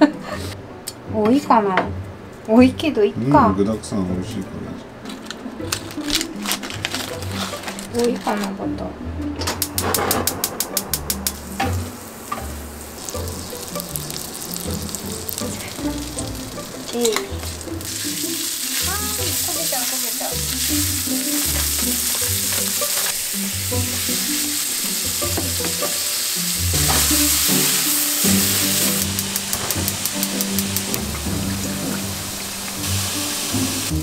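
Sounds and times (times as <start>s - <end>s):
soft background music: 0.0s - 34.0s
chopsticks stirring: 5.0s - 8.6s, 10.7s - 32.8s
meat sizzling in a frying pan: 11.2s - 34.0s.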